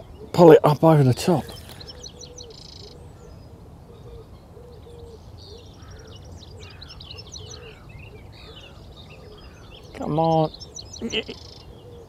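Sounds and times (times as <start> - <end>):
birds twittering and chirping: 0.0 - 12.0
low cooing: 11.0 - 12.0.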